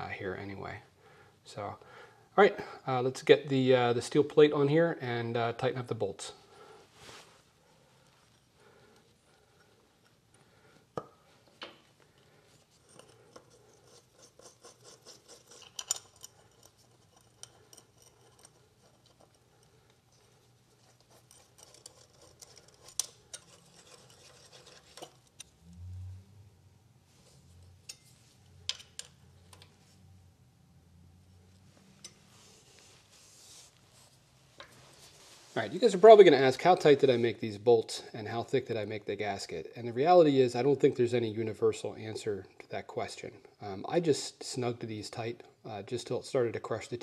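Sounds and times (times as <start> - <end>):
small metal clicks and scrapes: 12.1 - 25.6.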